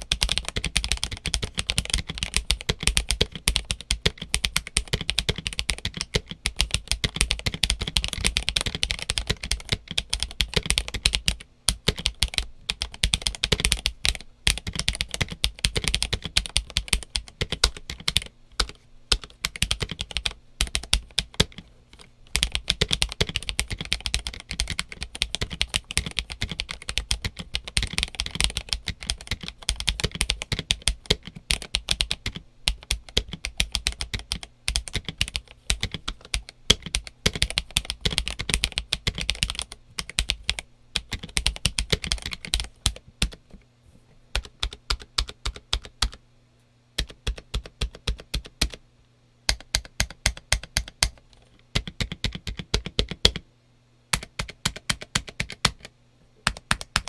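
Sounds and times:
mechanical keyboard typing: 0.0s - 43.4s, 44.3s - 46.2s, 47.0s - 48.8s, 49.5s - 53.4s, 54.1s - 57.0s.

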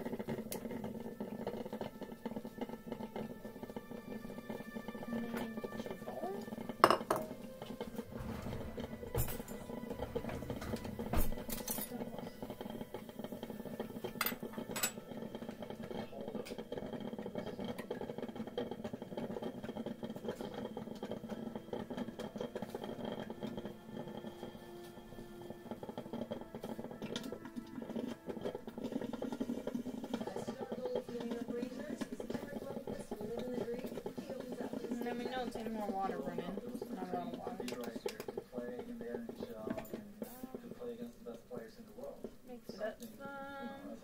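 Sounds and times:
bowl and spoon clinking on stone: 6.8s - 7.3s, 14.2s - 15.0s.

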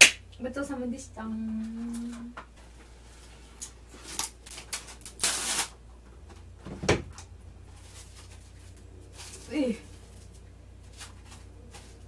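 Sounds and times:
cling wrap crinkling and rustling: 3.1s - 5.8s, 7.6s - 12.0s.

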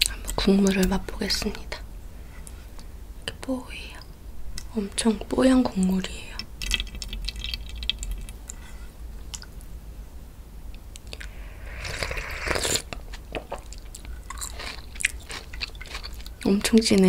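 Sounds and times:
person slurping broth: 11.2s - 13.3s.

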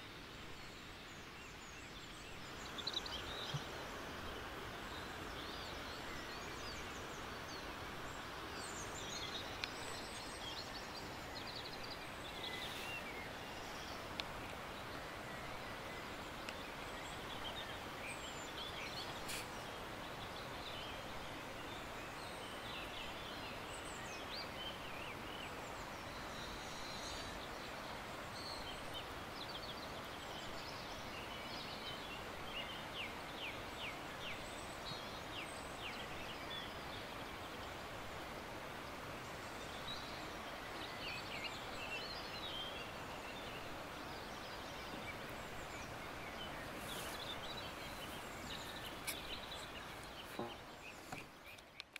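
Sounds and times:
small birds chirping: 0.0s - 51.9s.

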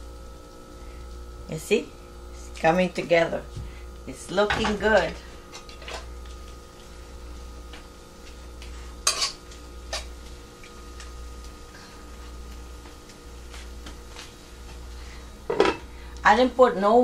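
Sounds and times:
utensil scraping a wok: 8.9s - 10.2s.

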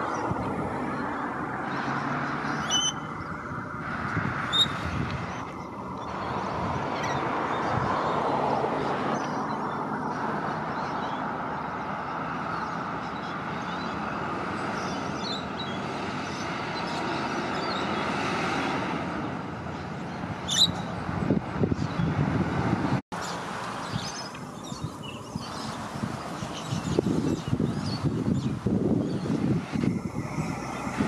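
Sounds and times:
cars and trucks driving past: 0.0s - 31.0s
heavy vehicle engine rumble: 28.0s - 31.0s.

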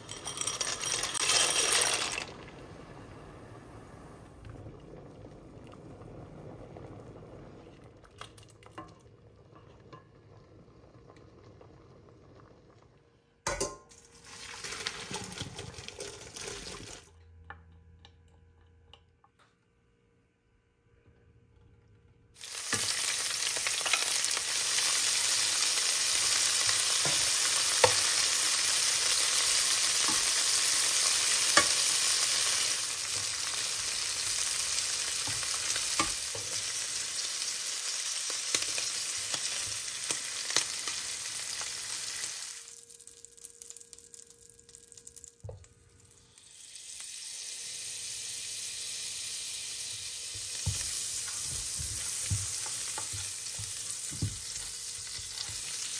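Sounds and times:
shrimp sizzling in a frying pan: 22.4s - 55.9s.

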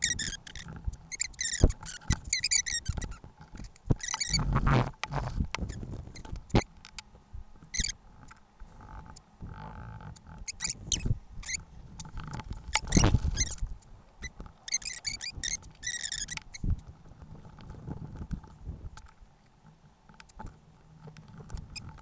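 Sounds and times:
taps and scrapes on mat: 0.7s - 7.1s.

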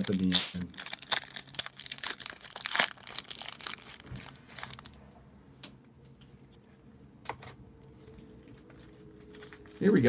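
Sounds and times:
foil wrapper crinkling and tearing: 0.0s - 5.0s.

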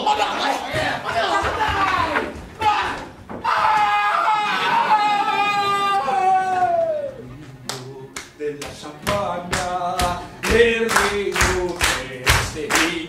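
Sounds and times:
rhythmic hand clapping: 7.6s - 13.0s.

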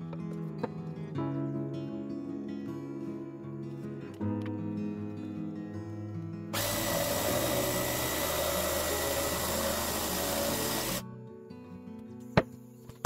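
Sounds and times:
jigsaw cutting wood: 6.6s - 11.0s.

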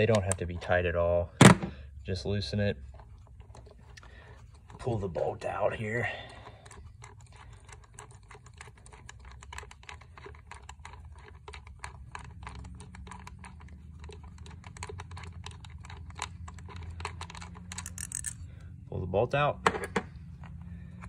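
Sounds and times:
wrench clicking on bolt: 17.2s - 18.4s.

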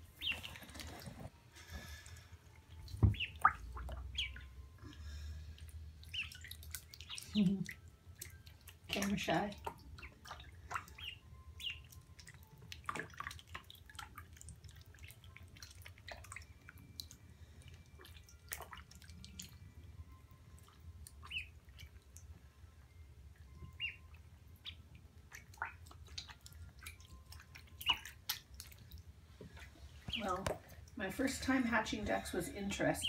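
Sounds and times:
ducklings peeping: 0.1s - 0.9s, 3.0s - 4.6s, 6.0s - 8.3s, 9.0s - 12.0s, 20.6s - 22.1s, 23.5s - 28.4s
water drips and splashes: 2.6s - 22.4s, 23.3s - 33.0s.

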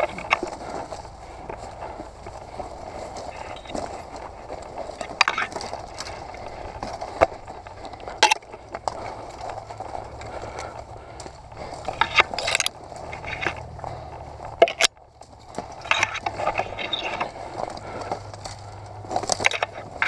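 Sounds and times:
footsteps crunching dry grass: 0.0s - 20.0s
twigs snapping: 0.0s - 20.0s.

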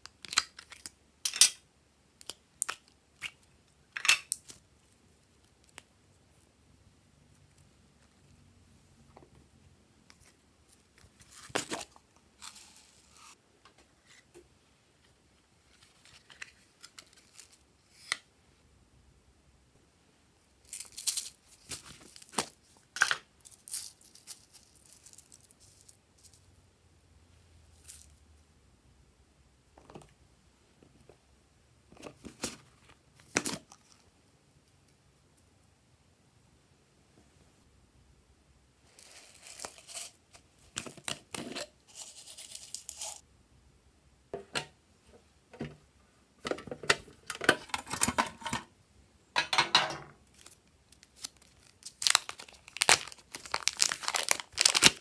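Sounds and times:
plastic containers rustling: 11.0s - 12.8s, 44.4s - 48.7s, 49.4s - 55.0s.

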